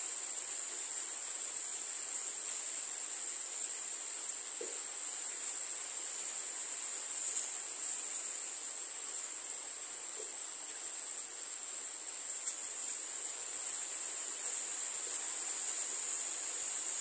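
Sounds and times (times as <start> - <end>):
high-pitched insect chorus: 0.0 - 17.0
rain falling: 0.0 - 17.0.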